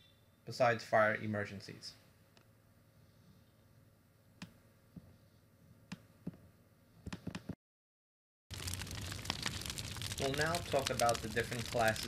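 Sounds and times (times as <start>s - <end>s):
loud crackling hiss: 8.5s - 12.0s.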